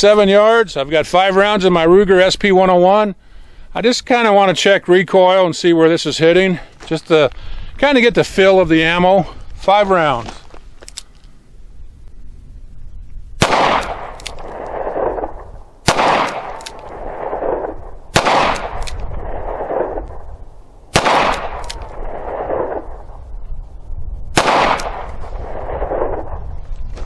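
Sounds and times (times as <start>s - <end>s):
revolver shots echoing: 13.4s - 20.1s, 20.9s - 22.9s, 24.4s - 26.3s.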